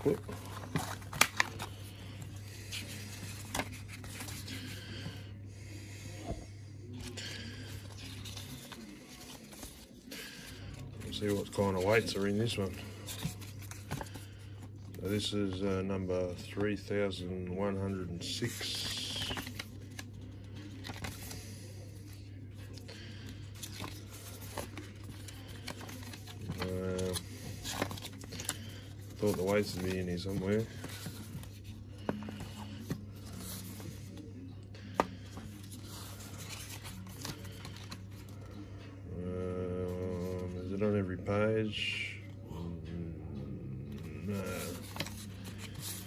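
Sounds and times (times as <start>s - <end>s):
paper pages rustling: 0.0s - 5.2s, 6.9s - 16.9s, 17.7s - 38.7s, 44.0s - 46.0s.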